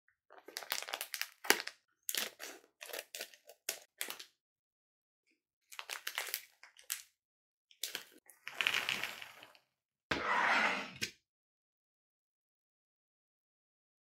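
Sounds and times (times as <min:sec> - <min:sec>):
plastic sweet pouch crinkling: 0:00.3 - 0:04.2, 0:05.7 - 0:07.1, 0:07.8 - 0:09.6.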